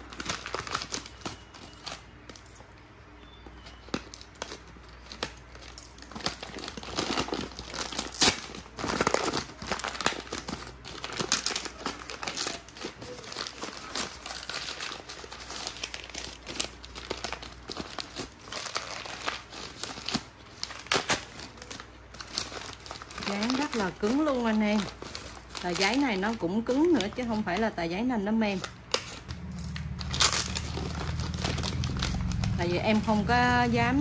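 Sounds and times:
paper crinkling and tearing: 0.0s - 2.0s, 3.6s - 27.8s, 28.5s - 33.2s
packing tape being pulled off: 6.2s - 23.8s.

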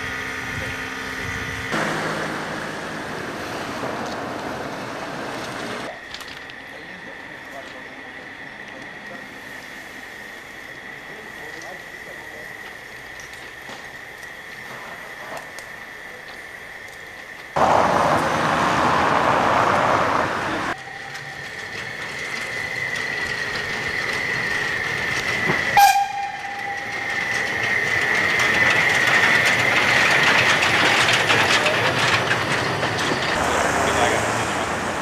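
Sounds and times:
wheels clattering over rail joints: 0.0s - 9.4s, 11.0s - 35.0s.

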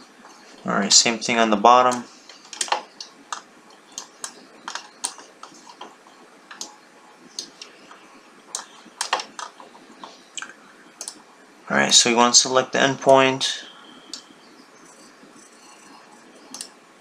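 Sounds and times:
computer mouse clicking: 1.9s - 11.2s, 14.1s - 16.8s.

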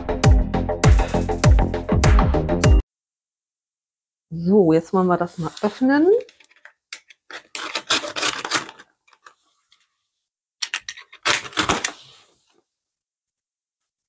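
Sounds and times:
utility knife slitting packing tape: 7.4s - 8.8s, 11.2s - 12.0s.

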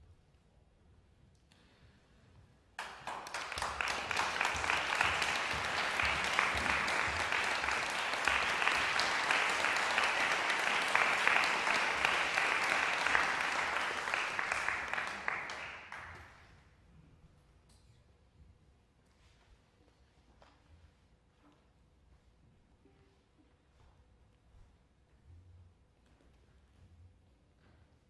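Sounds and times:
audience applause: 2.8s - 16.4s.

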